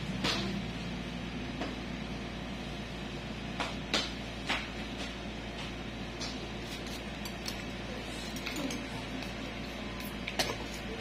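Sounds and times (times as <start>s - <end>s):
steady low hum: 0.0s - 11.0s
metal pick scraping toenail: 6.6s - 8.4s.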